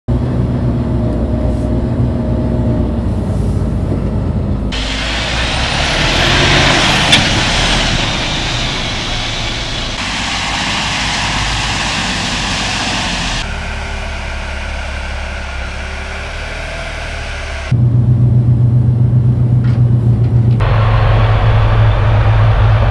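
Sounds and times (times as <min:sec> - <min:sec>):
diesel truck engine: 0:00.1 - 0:22.9
tyres hissing on gravel: 0:04.8 - 0:16.8.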